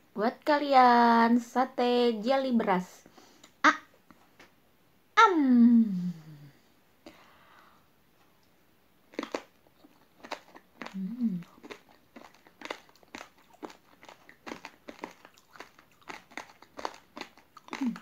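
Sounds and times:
chewing crunchy rice: 9.1 - 18.0
person humming briefly: 11.0 - 11.4.

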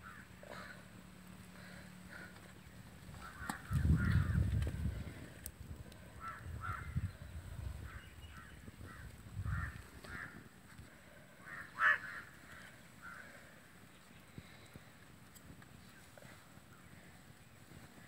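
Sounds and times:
crows cawing: 0.0 - 0.9, 3.1 - 4.7, 6.0 - 7.1, 7.8 - 13.7
low rumbles: 0.0 - 15.0.

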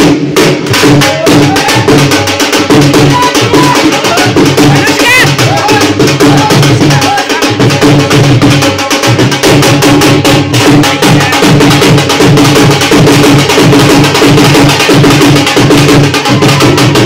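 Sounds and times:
barrel drum beaten with sticks: 0.0 - 17.0.

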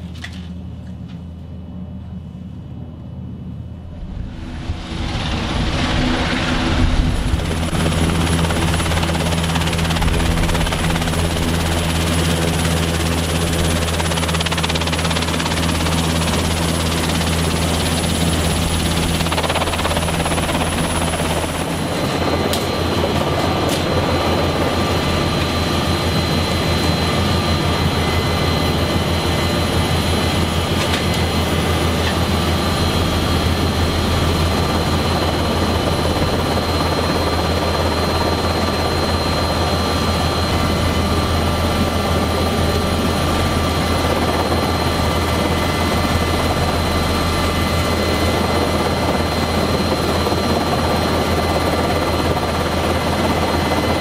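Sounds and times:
helicopter drone: 0.0 - 54.0
steady high whine: 0.5 - 54.0.

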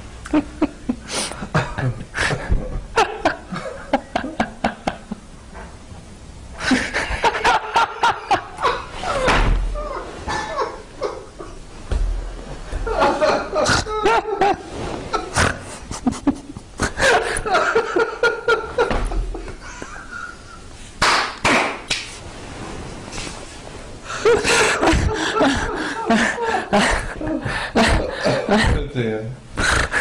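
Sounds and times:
people laughing: 0.3 - 5.2, 6.6 - 11.6, 12.7 - 20.7, 24.1 - 28.9.

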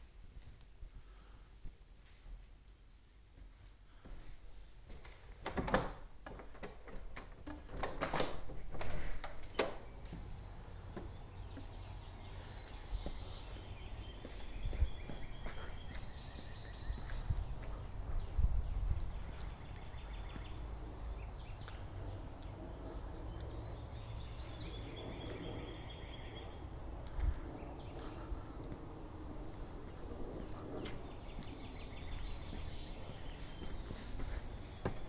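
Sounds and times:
door opening and closing: 5.4 - 10.3
footsteps: 9.0 - 23.0, 27.2 - 35.0
birds singing: 9.4 - 35.0
low rumble: 10.3 - 33.8.

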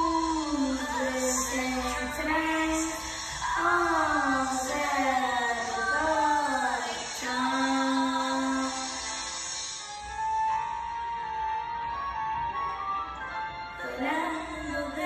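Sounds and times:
boy singing slow song: 0.0 - 9.6, 13.8 - 15.0.

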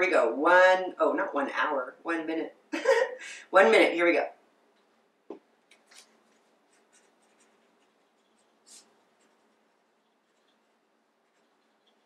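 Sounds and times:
pen scratching on paper: 6.3 - 12.0.

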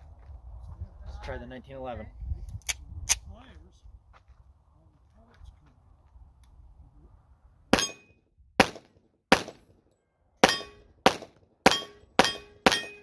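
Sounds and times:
pistol shots: 7.8 - 8.0, 8.6 - 9.7, 10.4 - 13.0
metallic ring of steel target: 7.8 - 8.2, 10.4 - 10.9, 11.7 - 13.0.

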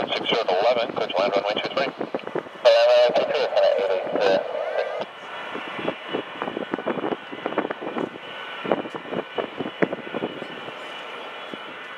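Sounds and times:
distant jet engines whining: 0.0 - 11.9.

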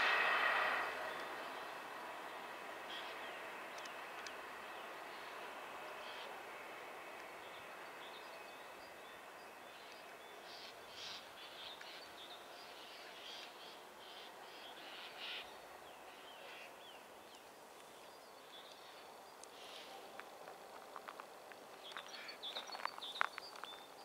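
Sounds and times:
distant diesel railcar hum: 0.0 - 16.6
small birds chirping: 1.0 - 6.4, 7.1 - 20.2, 21.0 - 24.0.

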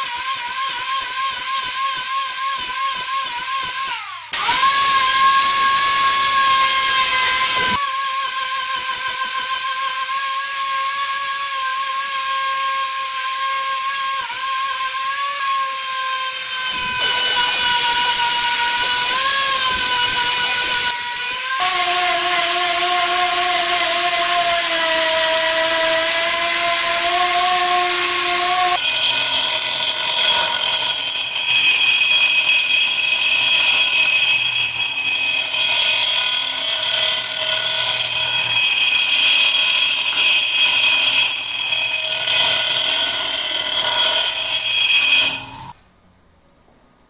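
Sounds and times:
angle grinder buffing steel: 0.0 - 45.8
bench grinder sharpening: 11.7 - 28.8.

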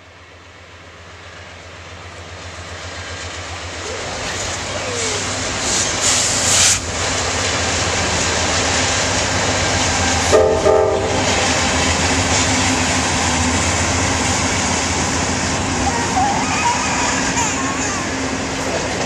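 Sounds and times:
train rumbling across bridge: 0.0 - 19.0
hiss: 2.8 - 10.3
train horn blast: 10.2 - 11.4.

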